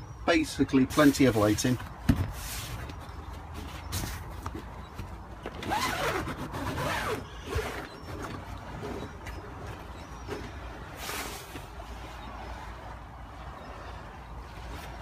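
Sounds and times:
zip being pulled: 5.6 - 8.2.

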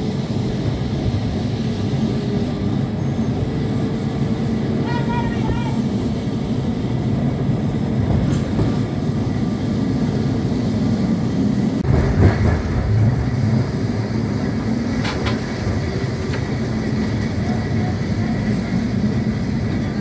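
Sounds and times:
tram jolt: 0.0 - 20.0
tram wheels rumbling on rails: 0.0 - 20.0.

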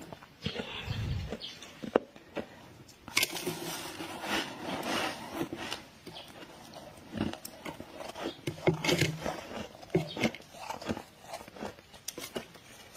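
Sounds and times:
freezer frost crunching: 0.0 - 12.9.

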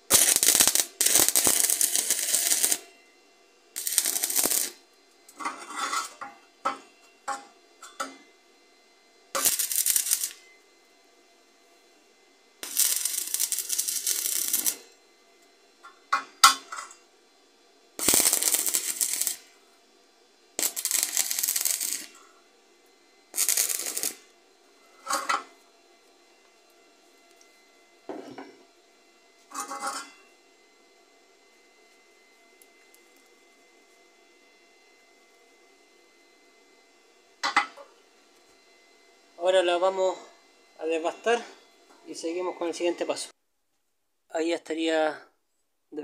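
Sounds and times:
welding electrode crackling: 0.0 - 2.9, 3.8 - 6.2, 9.3 - 10.4, 12.6 - 14.9, 18.0 - 19.5, 20.6 - 22.2, 23.3 - 24.3
sputtering arc strikes: 0.1 - 2.8, 12.6 - 14.8, 18.0 - 19.4.

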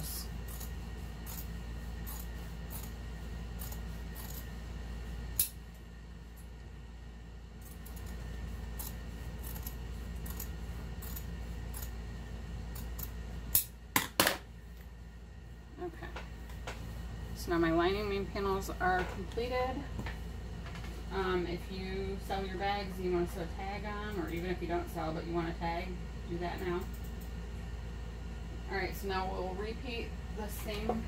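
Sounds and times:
scissors snipping fabric: 3.6 - 4.5.

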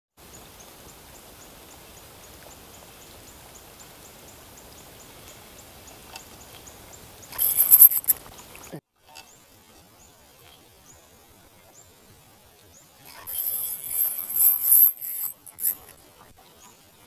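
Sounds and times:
rain falling on water: 0.2 - 5.5.

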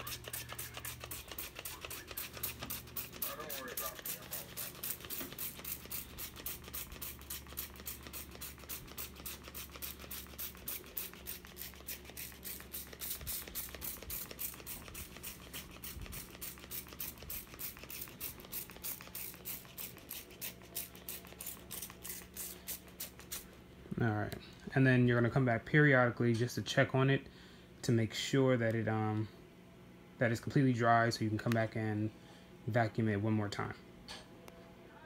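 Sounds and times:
spray bottle hisses: 4.0 - 23.5.

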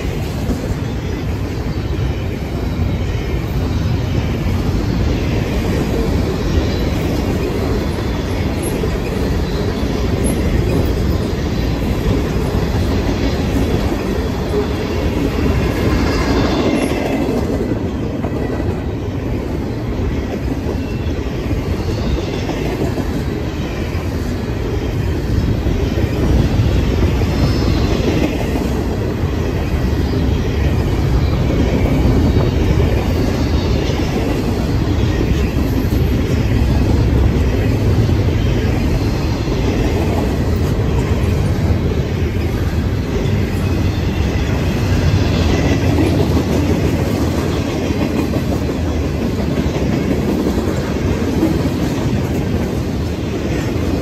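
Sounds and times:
clickety-clack over rail joints: 0.0 - 54.0
train wheels rumbling on rail: 0.0 - 54.0
faint high wheel squeal: 0.2 - 25.1.

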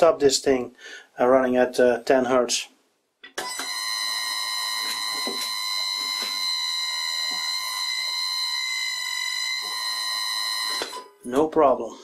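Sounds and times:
electric motor whine: 4.0 - 10.9.

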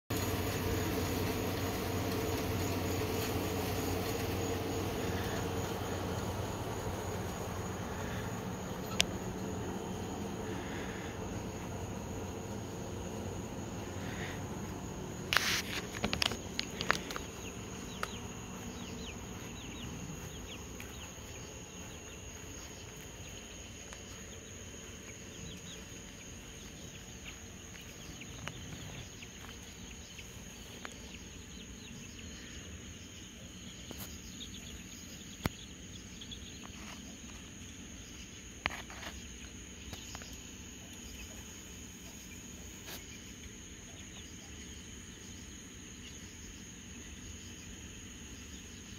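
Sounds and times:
crickets trilling: 0.1 - 48.9.

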